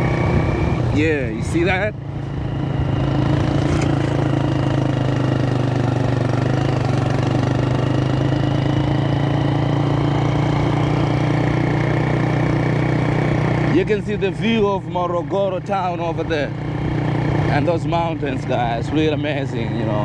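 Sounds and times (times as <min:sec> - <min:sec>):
riding noise: 0:00.0 - 0:07.9
motorcycle engine running: 0:00.0 - 0:20.0.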